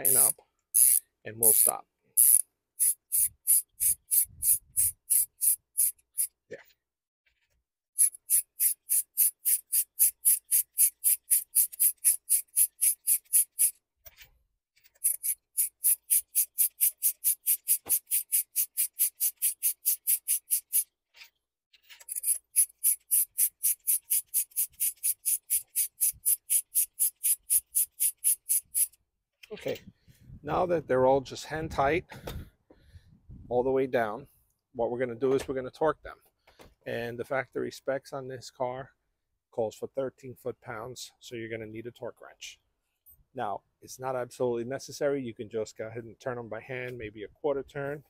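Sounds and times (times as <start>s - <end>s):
ratchet clicking: 0.0s - 6.3s, 8.0s - 13.8s, 15.0s - 20.9s, 21.9s - 29.0s.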